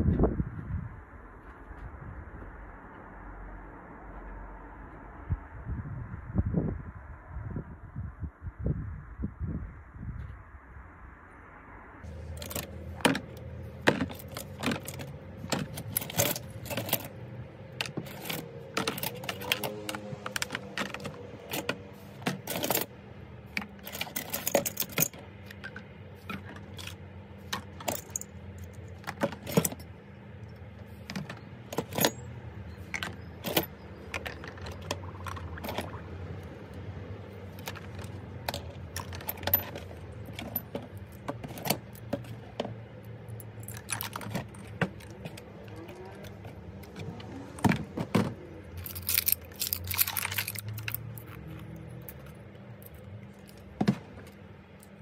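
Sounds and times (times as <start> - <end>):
steady low hum: 0.0 - 55.0
metal parts clinking: 12.2 - 22.9, 23.5 - 29.9, 31.0 - 36.0, 37.5 - 47.0, 48.7 - 55.0.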